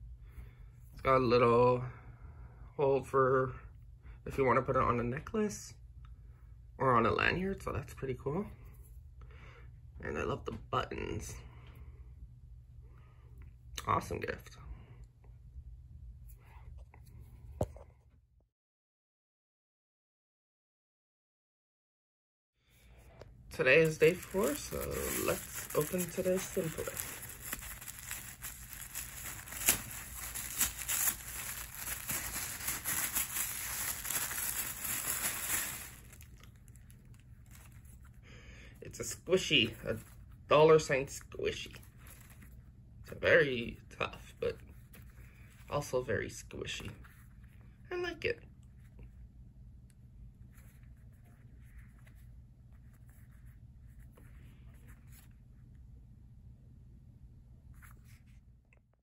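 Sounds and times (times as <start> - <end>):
low steady hum: 0.0 - 18.4, 22.6 - 59.0
packaging crinkling and rustling: 23.7 - 38.2, 41.7 - 42.6.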